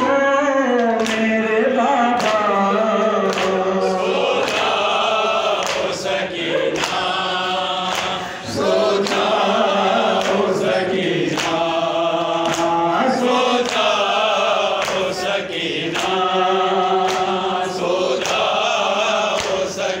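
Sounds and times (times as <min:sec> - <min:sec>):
man singing a lament into a microphone: 0:00.0 - 0:04.2, 0:08.1 - 0:14.6.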